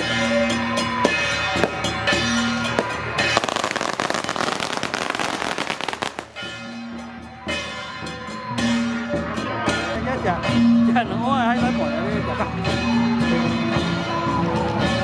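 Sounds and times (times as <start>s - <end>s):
procession music with drums: 0.0s - 15.0s
firecrackers crackling: 2.8s - 6.5s.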